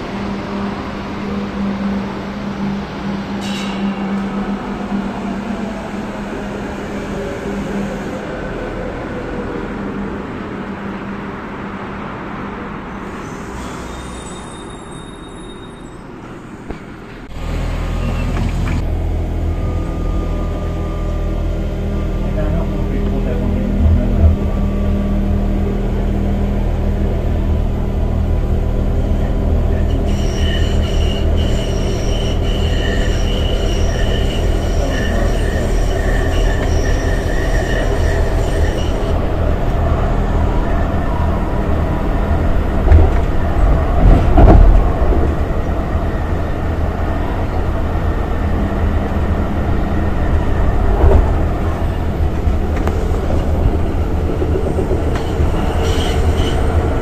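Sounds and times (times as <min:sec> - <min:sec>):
tram rumbling on rails: 0:00.0 - 0:57.0
steel wheels squealing: 0:13.0 - 0:16.6, 0:29.7 - 0:39.3, 0:53.9 - 0:57.0.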